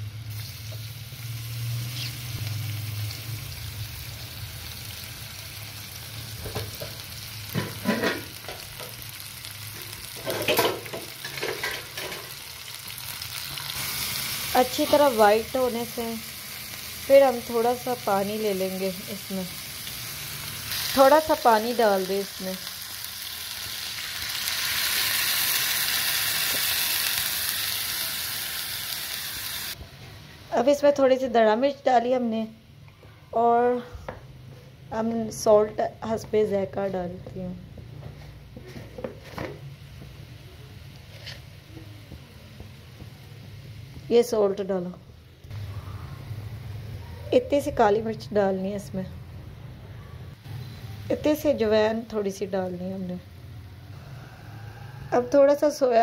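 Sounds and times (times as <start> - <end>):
chicken sizzling in oil: 0.0 - 29.8.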